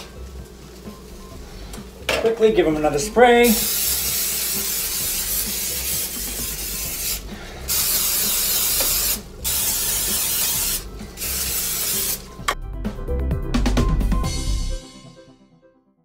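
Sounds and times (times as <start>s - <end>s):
music: 0.0s - 16.0s
aerosol spray can hissing: 3.4s - 12.5s.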